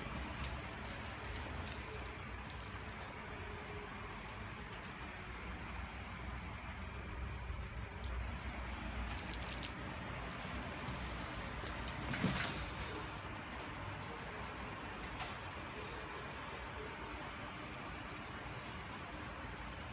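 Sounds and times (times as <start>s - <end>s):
small bell jingling: 0.3s - 3.4s, 4.3s - 5.4s, 7.2s - 8.2s, 8.8s - 13.1s.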